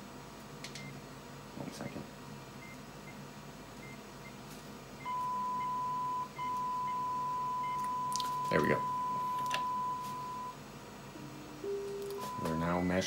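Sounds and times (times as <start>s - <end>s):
steady test tone: 5.1s - 13.0s.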